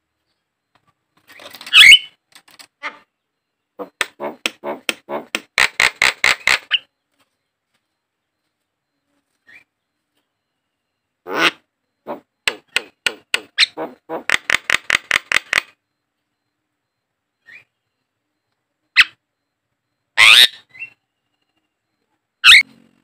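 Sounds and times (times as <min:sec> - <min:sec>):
bird harsh squawks: 0:01.7 - 0:02.2, 0:03.8 - 0:06.9, 0:11.3 - 0:12.3, 0:13.6 - 0:14.6, 0:19.0 - 0:19.2, 0:20.2 - 0:21.0, 0:22.4 - 0:22.7
bird sharp clicking notes: 0:03.8 - 0:06.9, 0:12.1 - 0:15.8.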